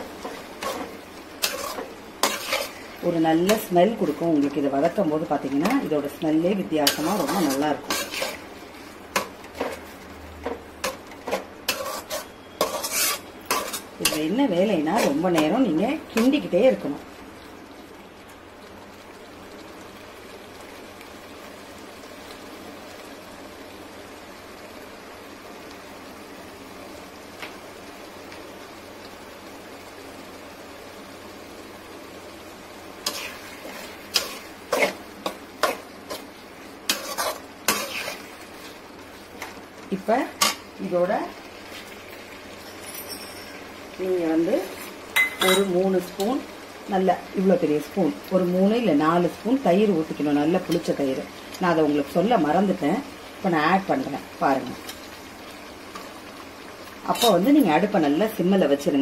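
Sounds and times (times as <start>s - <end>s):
faint sizzle: 0.0s - 59.0s
frying hiss: 0.0s - 59.0s
spatula scraping a pan: 0.2s - 2.9s, 6.8s - 10.0s, 10.8s - 14.3s, 33.0s - 36.3s, 36.9s - 38.8s.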